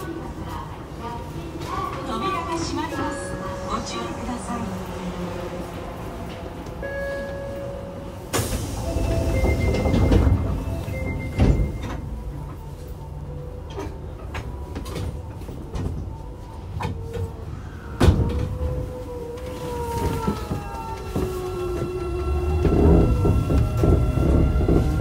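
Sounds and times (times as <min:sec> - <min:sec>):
subway doors sliding shut: 0:00.0 - 0:25.0
train car clunk: 0:05.7 - 0:18.8, 0:19.9 - 0:25.0.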